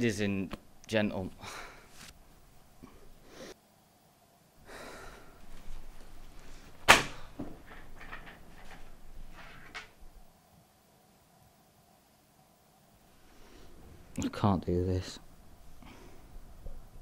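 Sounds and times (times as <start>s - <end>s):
rustling and handling noise: 0.0s - 3.2s, 5.2s - 10.3s.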